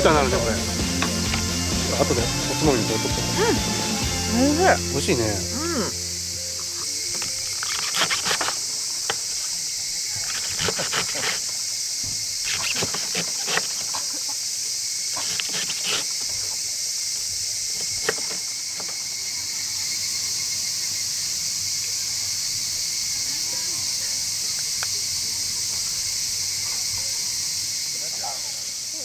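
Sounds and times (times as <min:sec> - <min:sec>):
high-pitched insect chorus: 0:00.0 - 0:29.0.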